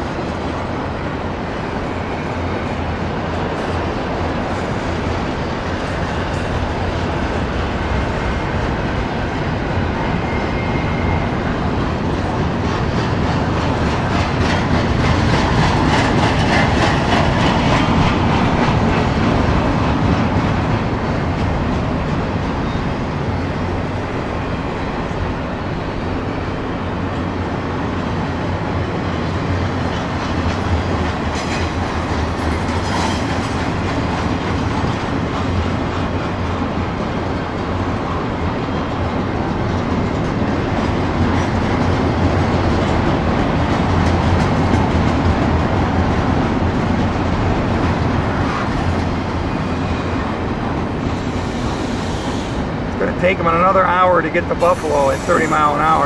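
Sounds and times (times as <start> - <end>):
train rumbling and rattling on rails: 0.0 - 56.0
train wheels clacking: 10.2 - 22.8, 29.5 - 56.0.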